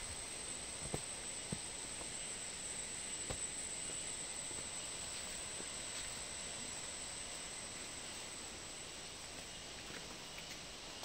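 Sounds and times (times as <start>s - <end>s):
forest insects droning: 0.0s - 11.0s.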